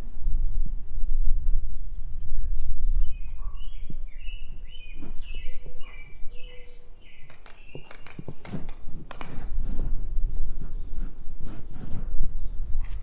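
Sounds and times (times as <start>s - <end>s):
bird chirping: 1.7s - 8.9s
sharp clicks and knocks: 7.2s - 9.6s.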